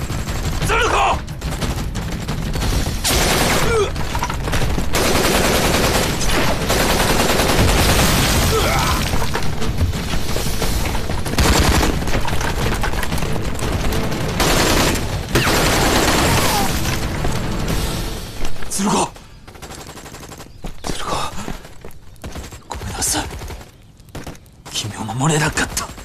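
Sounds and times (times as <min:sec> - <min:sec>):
automatic gunfire: 0:00.0 - 0:08.5, 0:11.3 - 0:16.7.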